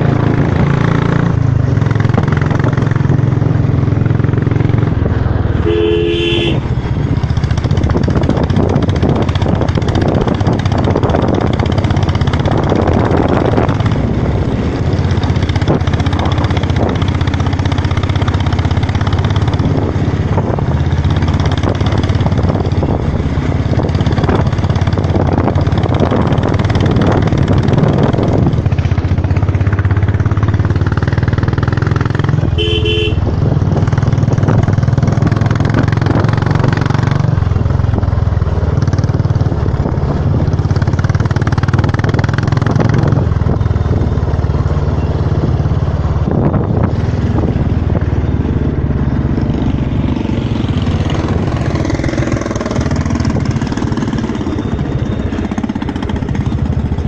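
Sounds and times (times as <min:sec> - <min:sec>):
motorcycle engine running: 0:00.0 - 0:57.0
road and wind noise: 0:00.0 - 0:57.0
horn beep: 0:05.6 - 0:06.7, 0:32.5 - 0:33.2.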